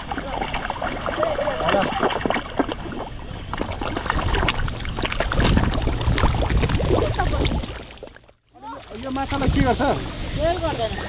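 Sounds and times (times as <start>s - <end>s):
low rumble: 0.0s - 8.2s
fish splashing at water surface: 0.0s - 10.2s.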